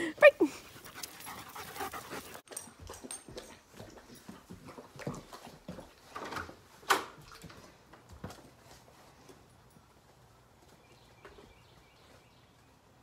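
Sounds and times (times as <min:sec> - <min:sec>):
dogs panting: 0:00.4 - 0:05.8.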